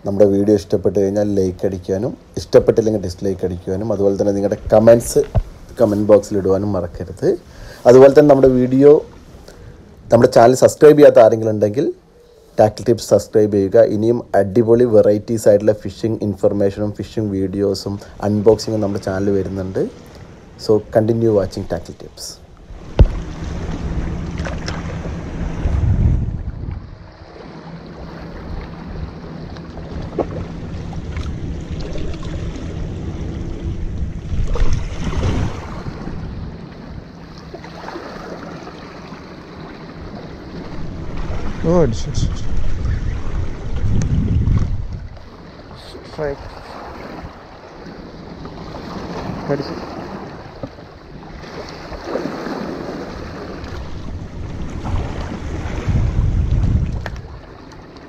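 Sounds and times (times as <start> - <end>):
wind rumbling on microphone: 0.0 - 11.2, 13.8 - 58.0
waves splashing against rocks: 22.8 - 25.8, 34.1 - 58.0
small waves washing against rocks: 51.4 - 57.6.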